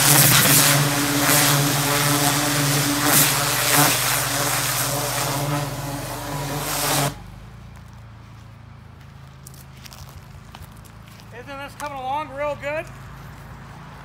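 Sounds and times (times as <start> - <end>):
water jet spraying into soil: 0.0 - 7.3
pressure washer motor hum: 0.0 - 7.4.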